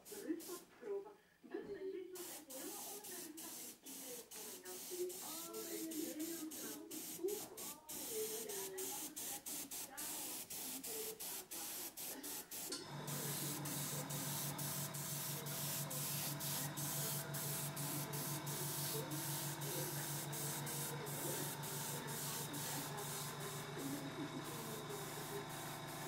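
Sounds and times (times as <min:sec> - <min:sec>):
airbrush hissing: 0:02.2 - 0:26.0
low motor hum: 0:12.8 - 0:26.0.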